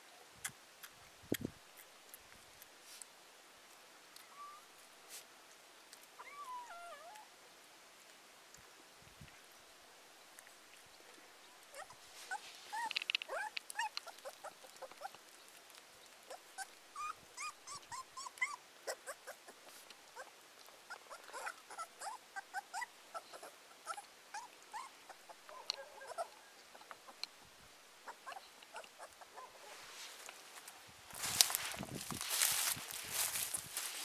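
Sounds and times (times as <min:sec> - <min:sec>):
young animal whimpering: 0:06.2 - 0:07.3, 0:11.7 - 0:15.2, 0:16.3 - 0:20.3, 0:20.9 - 0:26.4, 0:28.0 - 0:29.5
faint clicks: 0:12.8 - 0:16.2.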